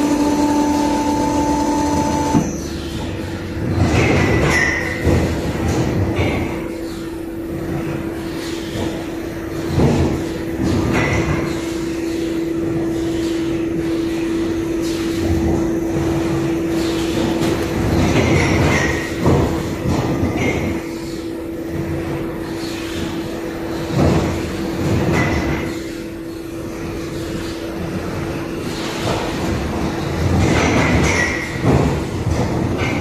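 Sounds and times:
motor hum: 0:00.0 - 0:03.8.

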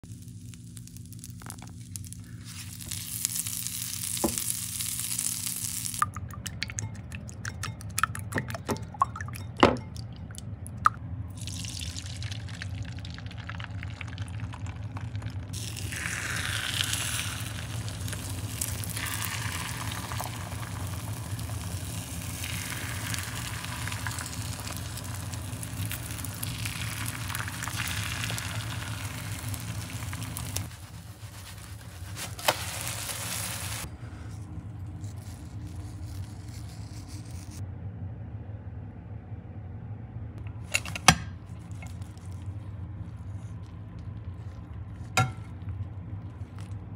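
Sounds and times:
eggs frying: 0:00.0 - 0:33.9
low steady hum: 0:00.0 - 0:46.9
butter sizzling in a frying pan: 0:00.1 - 0:06.0, 0:11.8 - 0:30.7, 0:32.1 - 0:33.9
spatula stirring: 0:30.5 - 0:33.8.

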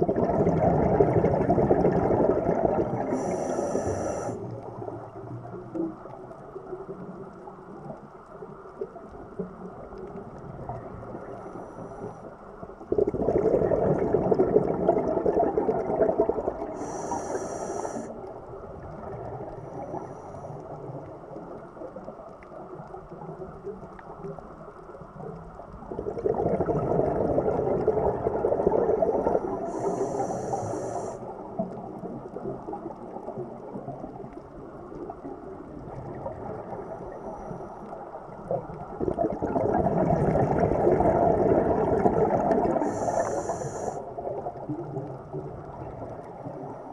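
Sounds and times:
exhaled bubbles rushing: 0:00.0 - 0:03.3, 0:12.8 - 0:16.9, 0:18.6 - 0:20.0, 0:25.2 - 0:29.9, 0:31.3 - 0:37.1, 0:37.8 - 0:43.3
steady underwater rush: 0:00.0 - 0:46.9.

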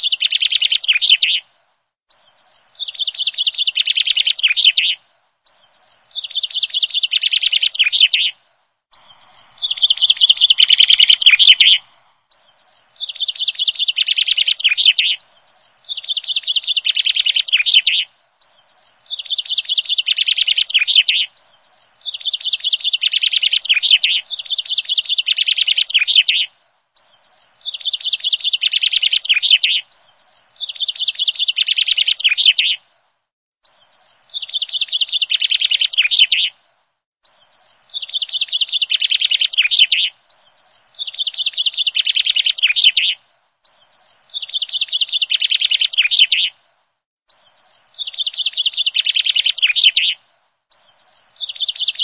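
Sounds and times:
bird chirping in high trills: 0:09.0 - 0:11.8.

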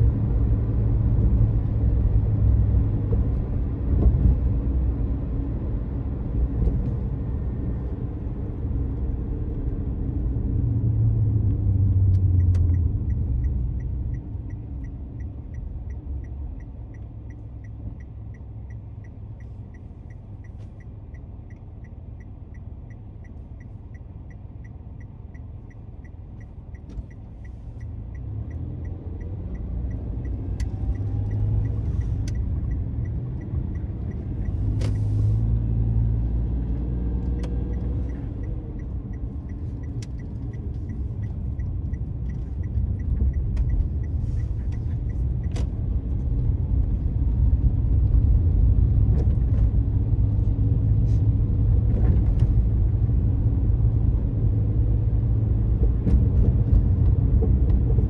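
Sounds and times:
car engine and road rumble: 0:00.0 - 0:58.0.

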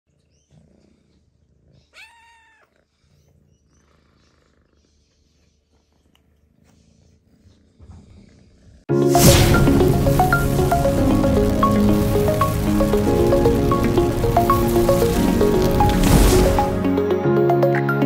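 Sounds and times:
kitten meowing: 0:02.0 - 0:02.7.

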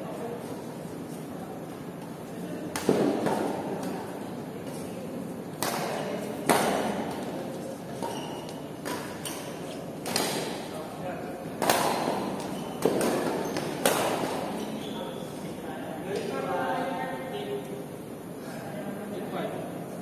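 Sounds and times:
rackets hitting shuttlecock: 0:02.7 - 0:04.0, 0:05.6 - 0:10.7, 0:11.6 - 0:14.6.

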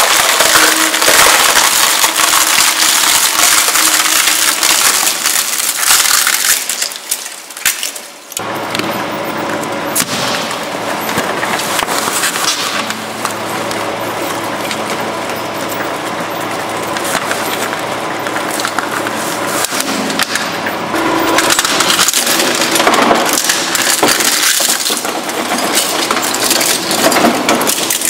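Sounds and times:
plastic bottle crackling in blades: 0:00.0 - 0:08.4, 0:21.3 - 0:28.0
shredder crunching and cracking: 0:00.0 - 0:08.4, 0:16.9 - 0:28.0.

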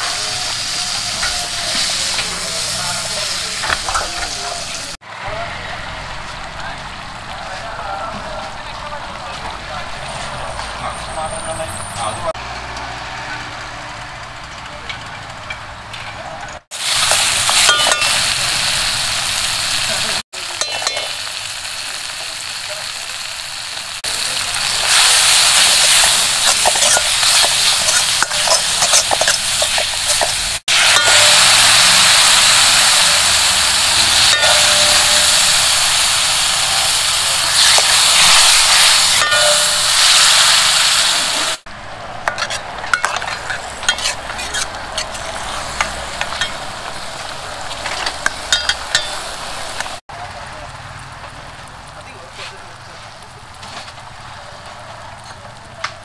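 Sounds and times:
food sizzling in a pan: 0:00.0 - 0:05.0, 0:16.7 - 0:41.7, 0:42.3 - 0:50.0.

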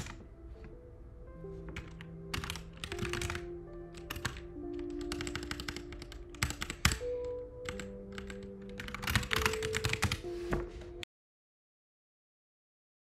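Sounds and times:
keyboard typing: 0:00.0 - 0:00.2, 0:01.6 - 0:10.7
soft lofi music: 0:00.0 - 0:11.1.

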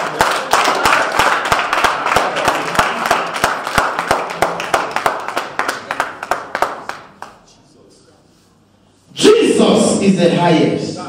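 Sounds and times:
applause: 0:00.0 - 0:07.4
sharp claps: 0:00.0 - 0:07.4.

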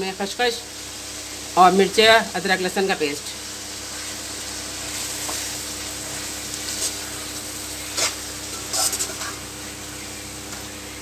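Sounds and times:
meat sizzling in hot oil: 0:00.0 - 0:11.0
metal spoon scraping pan: 0:07.9 - 0:09.4.

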